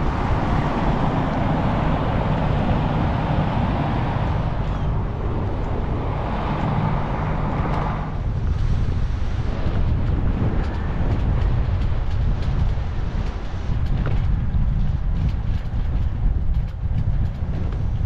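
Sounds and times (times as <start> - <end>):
road traffic rushing: 0.0 - 13.8
low rumble: 0.0 - 18.0
wind noise: 0.0 - 18.0.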